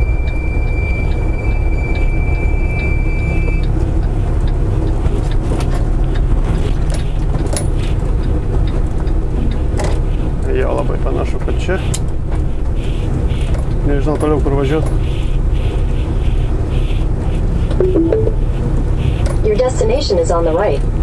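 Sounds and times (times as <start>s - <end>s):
truck engine and road rumble: 0.0s - 21.0s
thin high tone: 17.8s - 18.5s.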